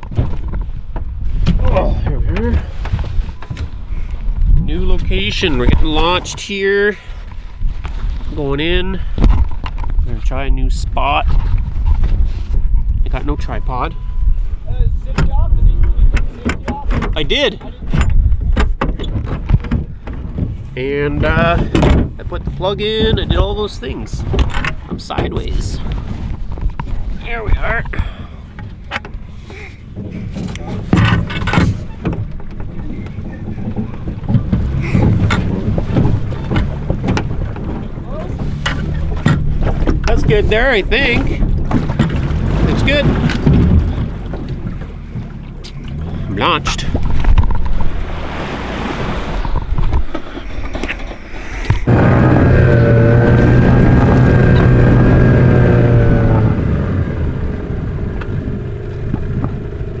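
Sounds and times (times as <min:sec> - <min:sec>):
wind rumble on microphone: 0:00.0 - 1:00.0
oars knocking in oarlocks: 0:15.1 - 0:29.3, 0:29.9 - 0:48.1, 0:58.3 - 1:00.0
rushing water: 0:29.6 - 1:00.0
engine running steadily: 0:51.6 - 1:00.0.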